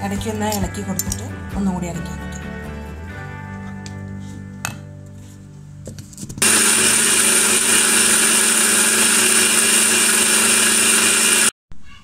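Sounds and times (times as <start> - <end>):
mixer grinder running: 6.4 - 11.6.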